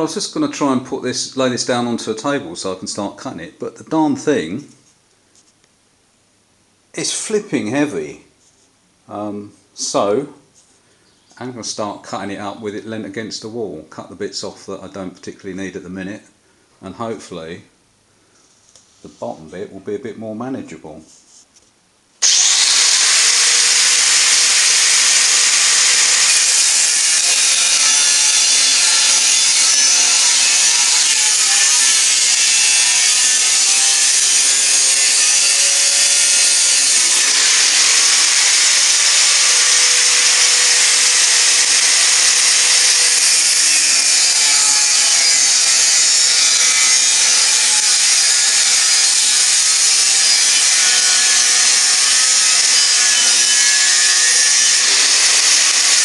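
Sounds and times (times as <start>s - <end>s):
angle grinder cutting steel: 22.2s - 56.0s.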